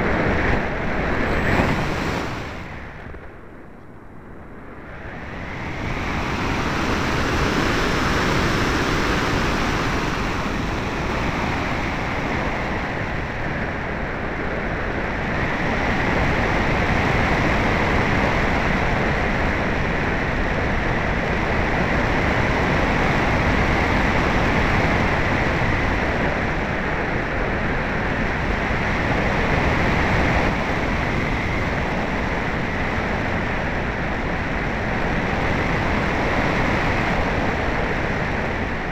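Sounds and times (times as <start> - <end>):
air rushing over microphone: 0.0 - 3.4.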